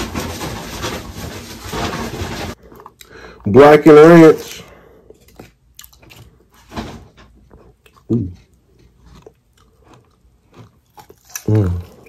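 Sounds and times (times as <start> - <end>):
chewing and crunching: 2.6 - 3.2, 4.5 - 12.0
person humming low: 11.5 - 11.9.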